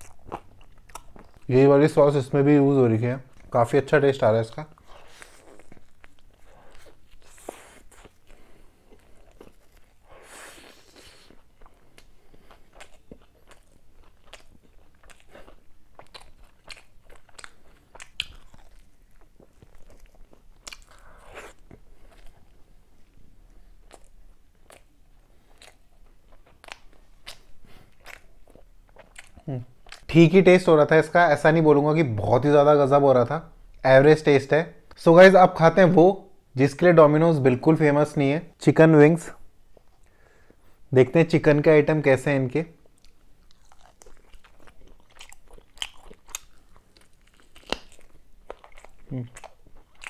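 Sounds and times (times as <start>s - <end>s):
crunchy bites and chewing: 4.8s - 22.5s, 42.8s - 50.0s.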